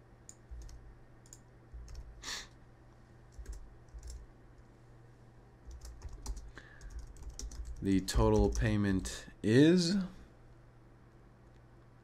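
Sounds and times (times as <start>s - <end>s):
keyboard keystrokes: 3.3s - 4.2s, 5.7s - 8.7s.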